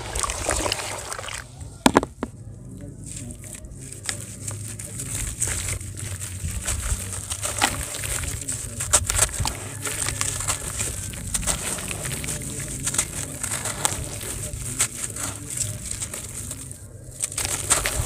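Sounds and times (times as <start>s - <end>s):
grains dropping into water: 0.0s - 2.3s
wet sand crumbling in hands: 0.0s - 18.0s.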